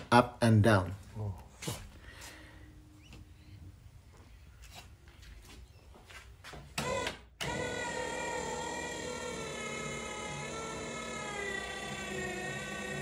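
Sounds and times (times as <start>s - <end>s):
electric motor whining: 6.8s - 13.0s.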